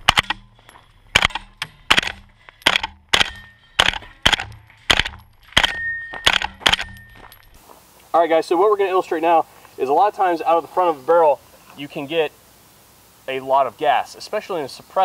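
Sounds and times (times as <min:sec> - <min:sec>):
suppressed gunshots: 0:00.0 - 0:00.5, 0:01.1 - 0:07.0.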